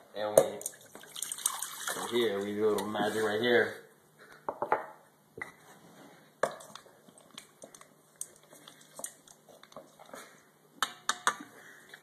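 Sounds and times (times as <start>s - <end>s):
spoon stirring in a bowl: 6.4s - 10.3s.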